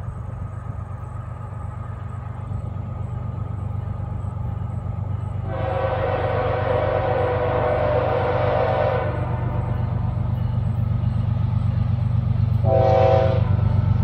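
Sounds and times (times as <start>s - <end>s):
diesel locomotive rumble: 0.0s - 14.0s
locomotive air horn: 5.4s - 9.9s, 12.6s - 13.7s.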